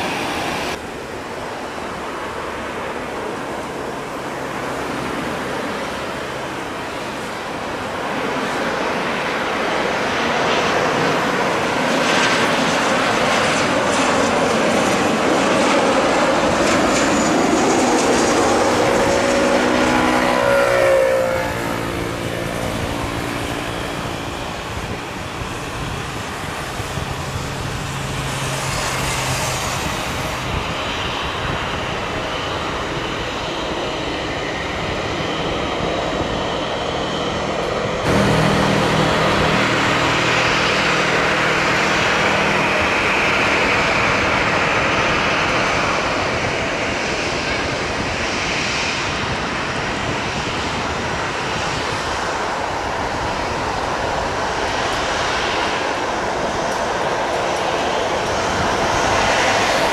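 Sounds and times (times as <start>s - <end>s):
jet airliner engines landing: 0.0s - 59.9s.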